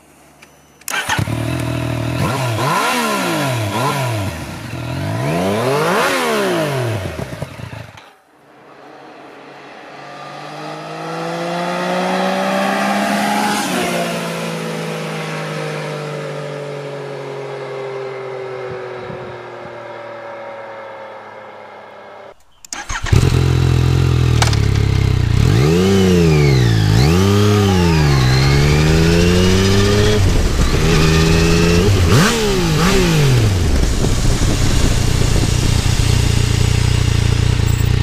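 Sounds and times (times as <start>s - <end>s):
motorcycle engine revving: 0.9s - 8.2s, 9.9s - 15.4s, 22.2s - 38.0s
motorcycle riding past: 1.0s - 38.0s.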